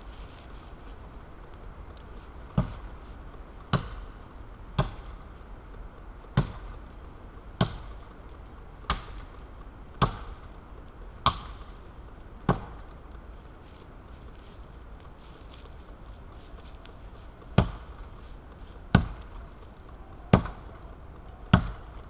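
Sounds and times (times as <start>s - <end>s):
axe chopping tree trunk: 3.7s - 4.0s, 17.6s - 17.9s, 18.9s - 19.3s, 21.5s - 21.9s.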